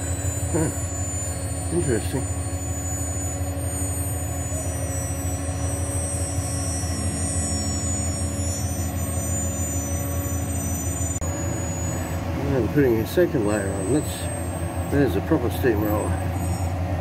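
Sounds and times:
second low tone: 0.0 - 3.4
heavy diesel engines droning: 0.0 - 17.0.

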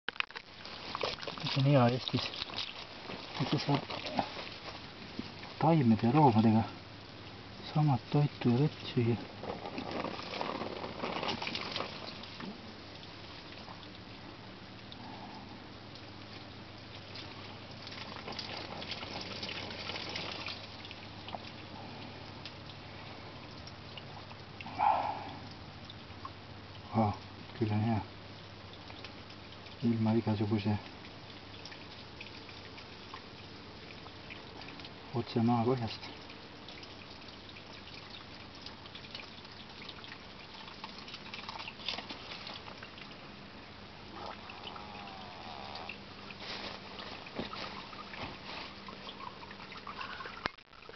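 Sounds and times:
hose water splashing on soil: 0.2 - 6.7, 7.6 - 13.9, 16.2 - 21.6, 28.8 - 50.9.

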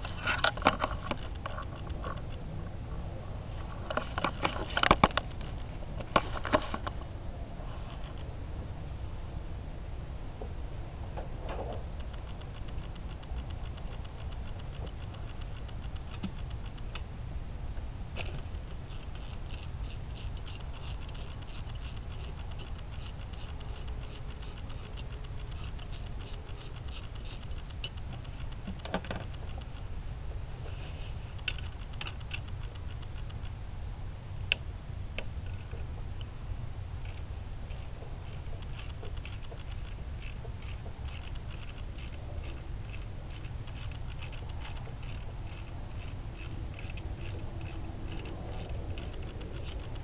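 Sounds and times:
ratchet wrench clicking: 18.7 - 28.6, 37.0 - 50.0.

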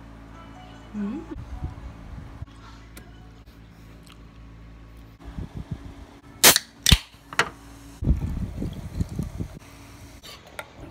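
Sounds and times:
can snapping open: 6.4 - 7.2.

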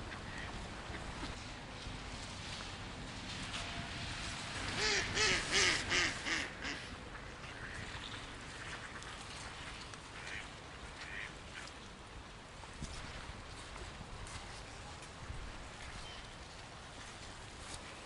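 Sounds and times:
ducks quacking: 4.8 - 6.9, 10.1 - 11.7.

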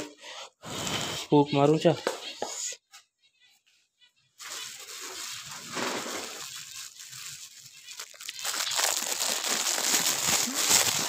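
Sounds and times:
plastic bag crinkling: 4.4 - 11.0.

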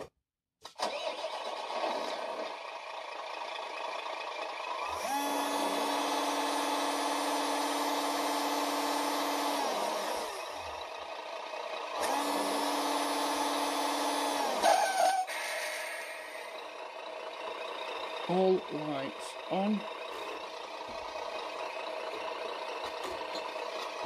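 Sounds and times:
simulated truck engine from speaker: 0.0 - 24.0.

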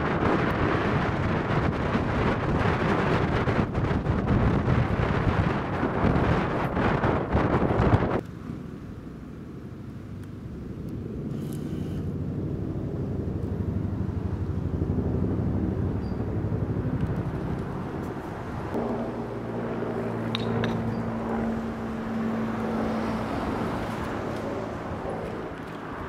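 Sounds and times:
steady engine hum: 0.0 - 26.0
vehicle engine running close: 13.1 - 26.0.

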